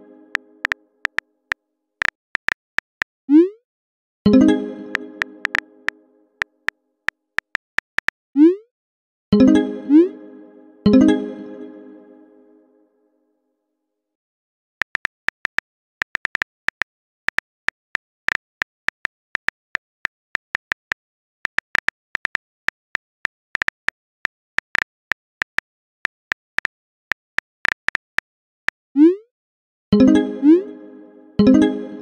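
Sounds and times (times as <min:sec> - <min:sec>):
phone keyboard typing clicks: 0:00.6 - 0:01.2, 0:02.0 - 0:03.1, 0:04.9 - 0:05.6, 0:07.4 - 0:08.1, 0:14.8 - 0:24.0, 0:24.6 - 0:28.3.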